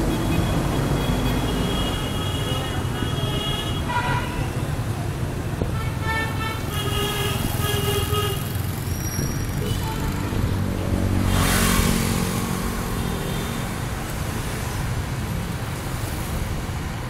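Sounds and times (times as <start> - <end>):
low traffic rumble: 0.0 - 17.0
motorbike engines passing: 7.3 - 17.0.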